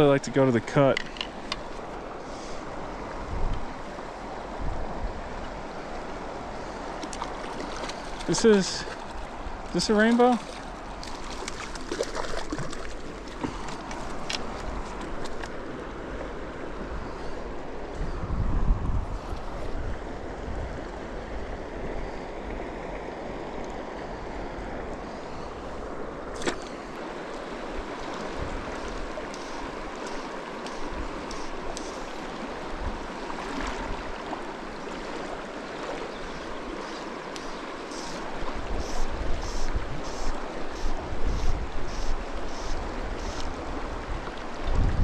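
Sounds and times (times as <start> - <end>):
wind buffeting microphone: 2.7 - 9.7, 16.7 - 22.0, 38.4 - 45.0
river rushing over rocks: 25.9 - 39.3.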